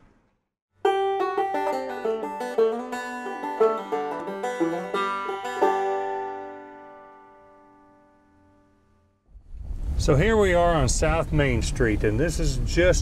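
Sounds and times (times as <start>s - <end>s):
plucked string instrument: 0.8s - 8.9s.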